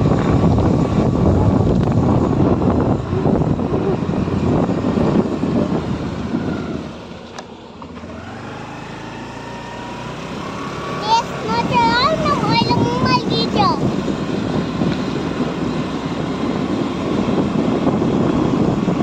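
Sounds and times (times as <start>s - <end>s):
engine running: 0.0s - 19.0s
vehicle road noise: 0.0s - 19.0s
wind buffeting: 0.0s - 19.0s.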